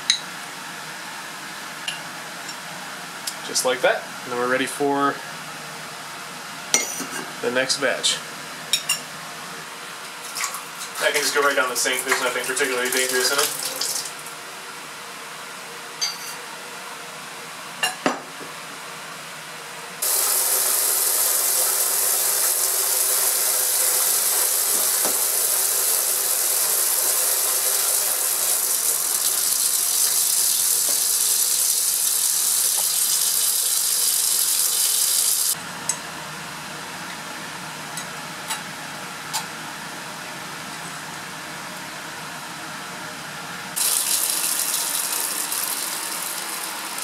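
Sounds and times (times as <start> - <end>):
vacuum filtration hiss: 0.0 - 47.0
glassware clinking: 6.8 - 7.2, 16.0 - 16.4.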